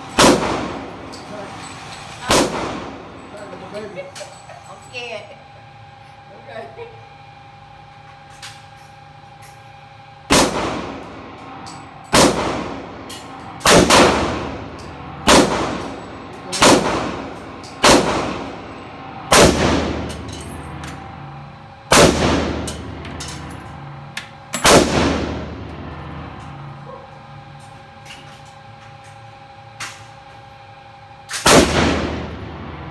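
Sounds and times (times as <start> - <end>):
rifle shots echoing indoors: 0.1 - 0.9, 2.2 - 3.0, 10.3 - 11.1, 12.1 - 12.9, 13.6 - 14.6, 15.2 - 18.6, 19.2 - 20.1, 21.9 - 22.8, 24.6 - 25.6, 31.3 - 32.7.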